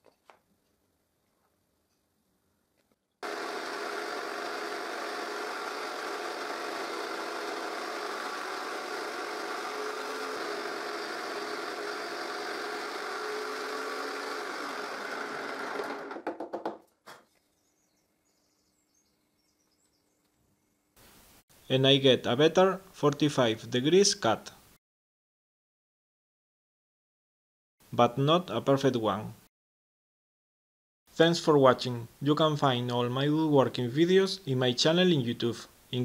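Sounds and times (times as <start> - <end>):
jigsaw motor buzzing: 3.2 - 16.4.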